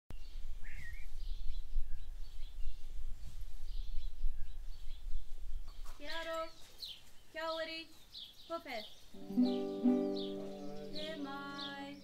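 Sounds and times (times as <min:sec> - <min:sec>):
wind buffeting microphone: 0:00.1 - 0:06.6
birds chirping: 0:00.1 - 0:12.0.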